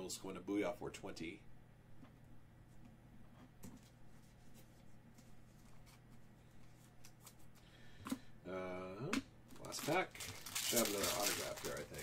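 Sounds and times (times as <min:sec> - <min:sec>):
trading cards clicking and rustling: 0:09.5 - 0:12.0.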